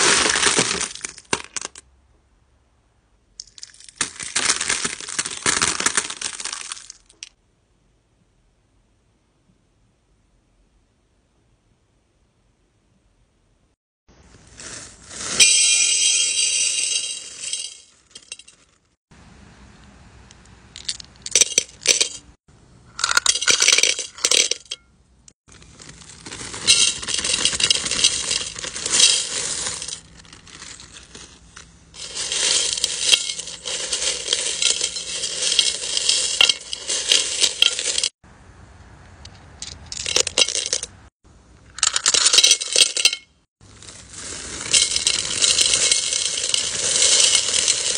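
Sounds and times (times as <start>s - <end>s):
crystal stones clinking in ceramic bowl: 32.0s - 38.2s, 44.6s - 47.9s.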